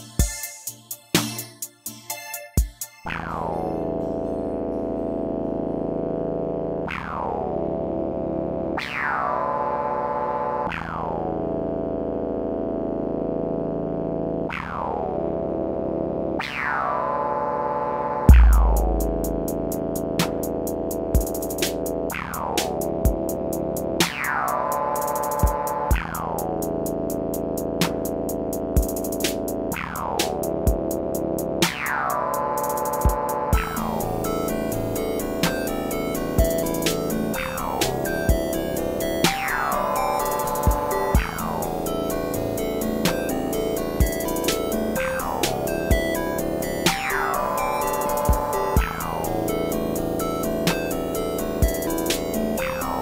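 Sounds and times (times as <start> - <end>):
slowed electronic synthesizer chords: 0.0 - 53.0
heavy percussion hit: 18.3 - 19.9.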